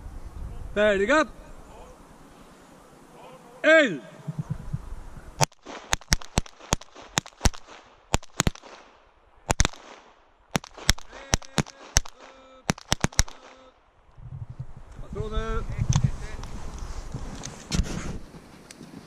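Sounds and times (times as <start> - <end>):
pistol gunshots: 5.4 - 13.7.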